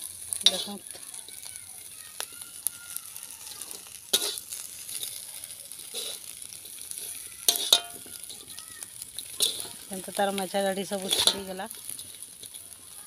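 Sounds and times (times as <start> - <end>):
shrimp sizzling in oil: 0.0 - 13.0
metal spatula scraping a pan: 0.2 - 1.4, 3.5 - 12.7.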